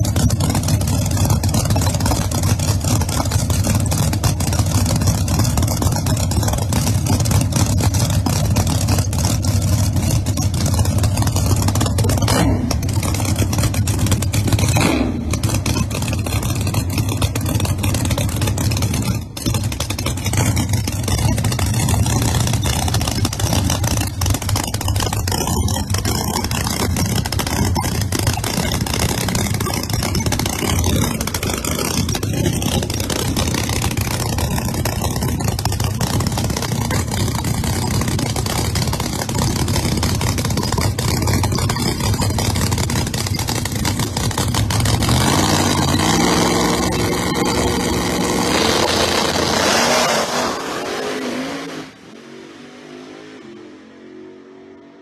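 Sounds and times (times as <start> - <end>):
race car engine running rough: 0.0 - 55.0
car accelerating through gears: 43.9 - 55.0.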